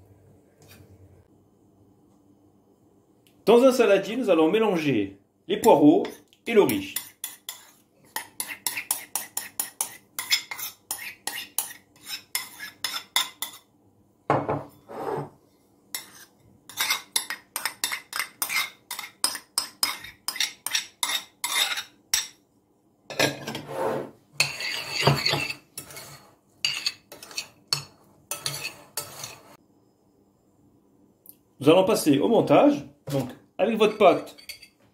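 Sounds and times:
spoon clinking against bowls: 33.8 - 34.8.

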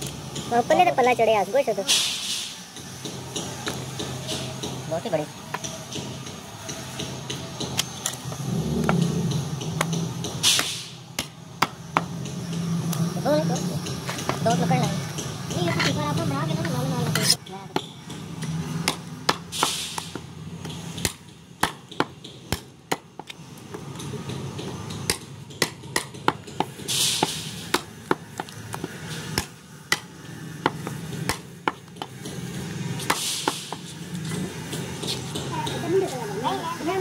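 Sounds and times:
cleaver chopping meat and bone: 8.7 - 13.1, 17.1 - 32.4.

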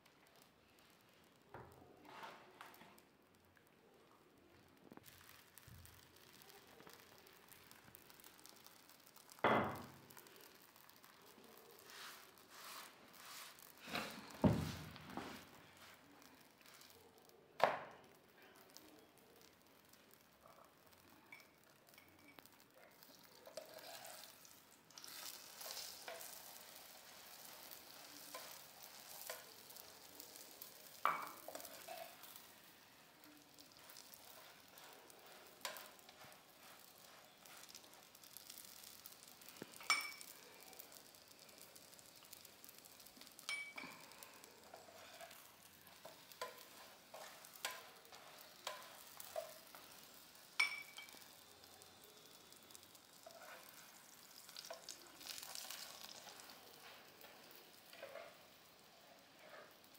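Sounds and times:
oil sizzling in a pan: 0.0 - 59.9
metal spoon clinking: 39.8 - 40.3, 43.4 - 44.1, 50.6 - 51.2.

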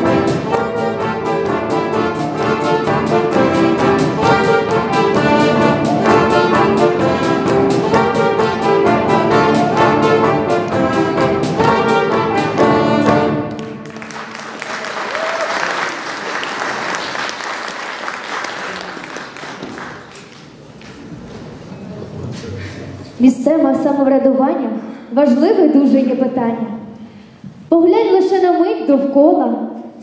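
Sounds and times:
brass-led orchestral music: 0.0 - 15.1
applause: 13.5 - 20.6.

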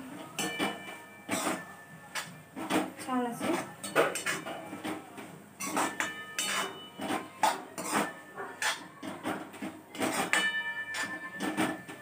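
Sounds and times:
metal spatula scraping metal pan: 0.4 - 2.3, 3.3 - 4.9, 5.6 - 12.0.

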